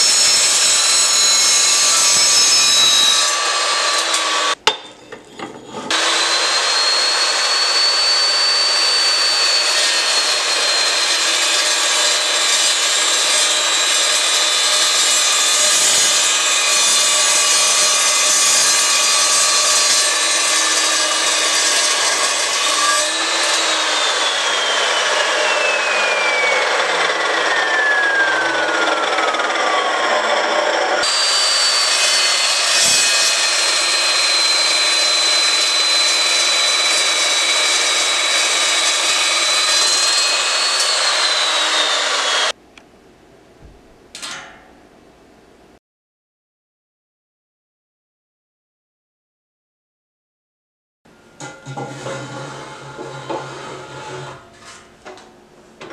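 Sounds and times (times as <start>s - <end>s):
chop saw whining: 0.0s - 4.6s, 5.8s - 42.6s, 51.4s - 54.6s
blade scraping through steel: 51.4s - 54.9s.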